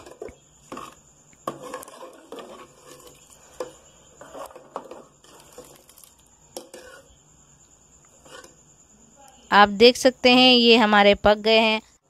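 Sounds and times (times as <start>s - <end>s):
metal ladle scraping pot: 0.0s - 7.2s, 8.1s - 8.7s.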